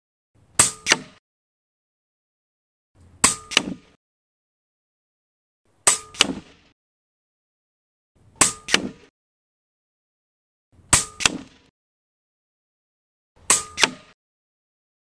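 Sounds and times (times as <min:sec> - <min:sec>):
pellet hitting target: 0:05.9 - 0:06.7, 0:10.9 - 0:11.7.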